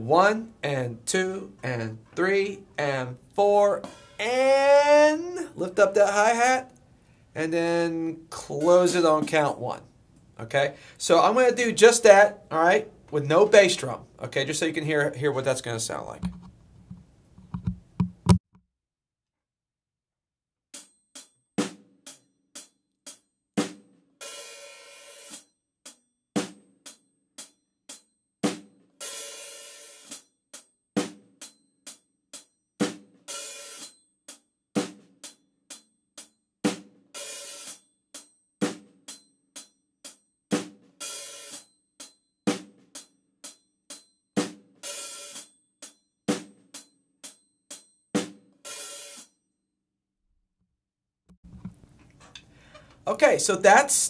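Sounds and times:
snare drum strokes: 0:03.8 - 0:04.3, 0:28.5 - 0:30.2, 0:37.2 - 0:37.8
closed hi-hat strokes: 0:03.8 - 0:05.4, 0:24.2 - 0:25.5, 0:29.0 - 0:30.3, 0:33.3 - 0:34.0, 0:37.2 - 0:38.3, 0:41.0 - 0:42.2
open hi-hat sizzle: 0:37.2 - 0:37.8, 0:41.0 - 0:41.7.

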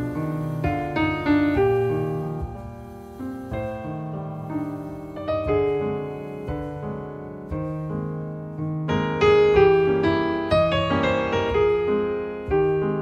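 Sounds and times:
piano notes and chords: 0:00.0 - 0:13.0.

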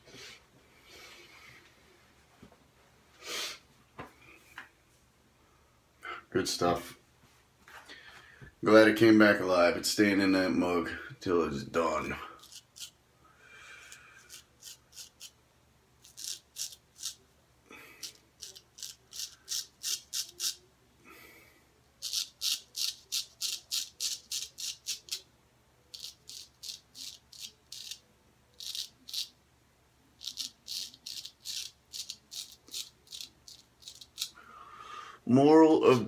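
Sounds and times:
razor scraping stubble: 0:11.8 - 0:13.0, 0:13.8 - 0:15.4, 0:16.0 - 0:17.2, 0:18.0 - 0:20.6, 0:22.0 - 0:25.2, 0:25.9 - 0:28.0, 0:28.6 - 0:29.3, 0:30.2 - 0:34.4.

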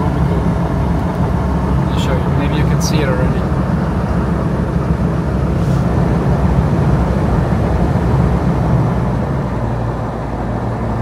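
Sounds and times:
low engine drone: 0:00.0 - 0:11.0
road noise: 0:00.0 - 0:11.0.

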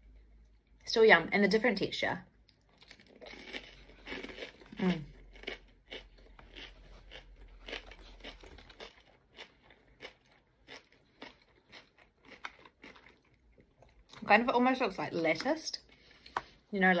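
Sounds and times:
chewing crispy food: 0:02.4 - 0:14.4.

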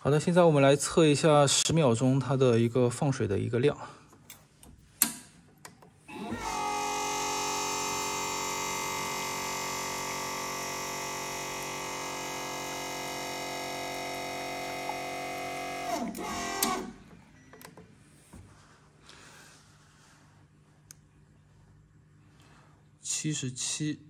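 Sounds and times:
click: 0:04.1 - 0:05.9, 0:20.8 - 0:21.0
espresso machine pump whine: 0:06.1 - 0:17.5.

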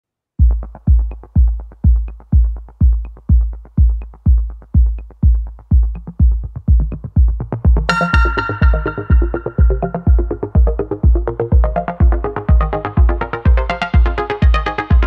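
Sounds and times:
electronic dance music: 0:00.4 - 0:15.0.

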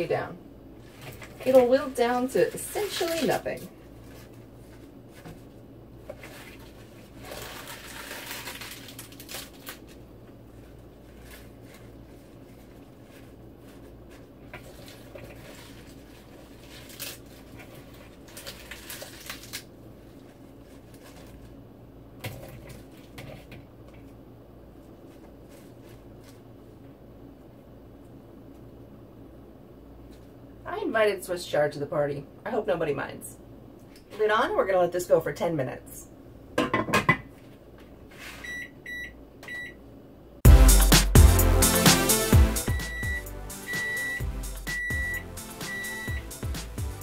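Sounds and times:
steady low hum: 0:00.0 - 0:36.6, 0:37.3 - 0:47.0
leaves rustling and crackling: 0:02.4 - 0:05.2, 0:06.2 - 0:10.0, 0:10.6 - 0:21.5.

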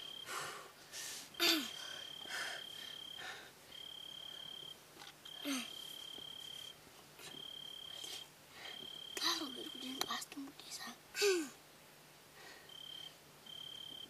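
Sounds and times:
cricket trilling: 0:00.0 - 0:00.3, 0:01.3 - 0:10.2, 0:12.7 - 0:14.0.

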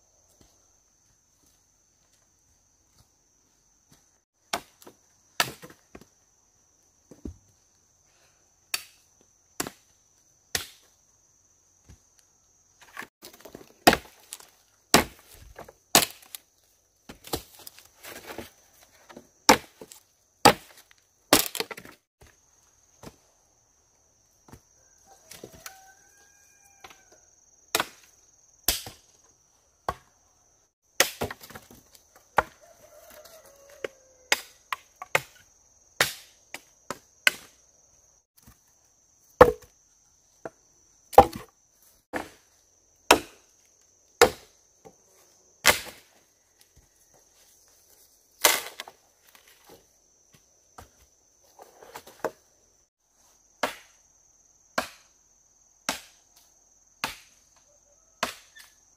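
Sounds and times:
chopping knocks on wood: 0:39.4 - 0:39.7, 0:41.2 - 0:41.5.

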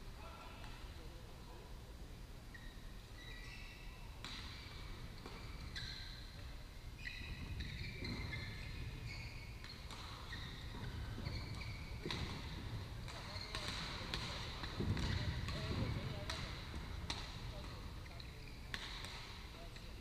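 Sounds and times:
shoes squeaking on court: 0:02.5 - 0:20.0
racket hitting shuttlecock: 0:11.9 - 0:19.4.

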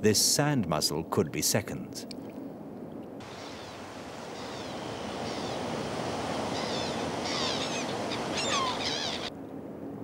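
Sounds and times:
ocean surf washing in: 0:03.2 - 0:09.3
high bird calls: 0:03.3 - 0:09.3.

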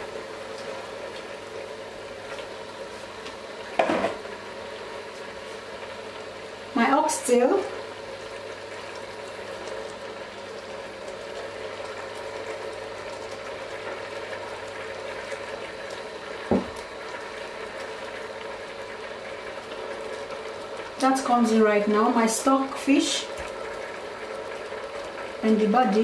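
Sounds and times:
pot of broth boiling: 0:00.0 - 0:26.0
brief thump: 0:16.5 - 0:16.8.

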